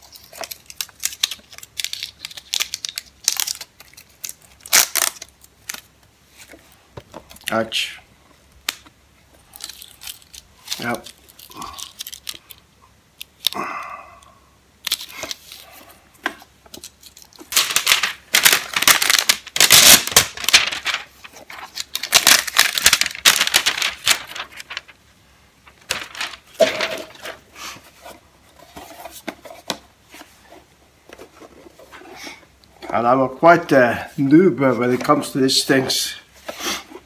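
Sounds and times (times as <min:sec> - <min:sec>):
plastic wrap tearing and crackling: 0:00.0 - 0:05.9, 0:08.6 - 0:12.6, 0:16.7 - 0:25.0, 0:25.7 - 0:27.4
box rustling and handling: 0:16.2 - 0:24.9, 0:25.7 - 0:32.2.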